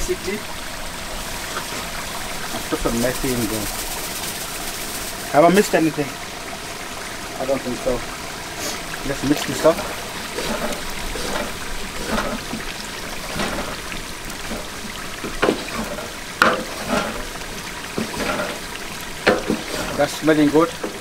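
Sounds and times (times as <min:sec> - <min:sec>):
thick curry sloshing: 0:08.6 - 0:21.0
spoon scraping steel pot: 0:09.7 - 0:17.4, 0:18.0 - 0:18.7.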